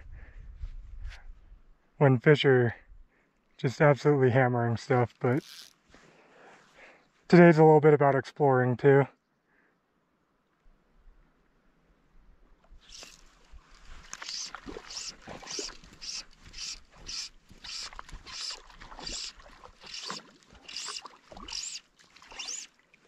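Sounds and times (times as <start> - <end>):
fly line swishing: 12.8 - 22.7.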